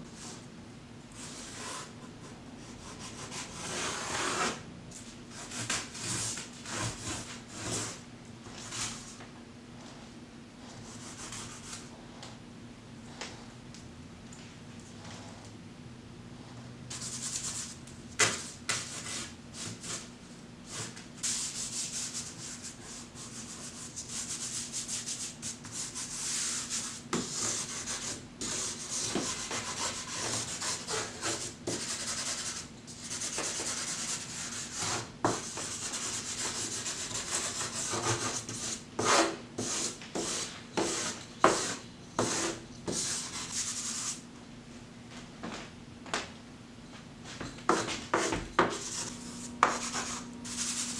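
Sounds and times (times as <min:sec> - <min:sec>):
charcoal scratching on paper: 0:10.8 - 0:11.8, 0:20.7 - 0:44.2, 0:47.7 - 0:50.9.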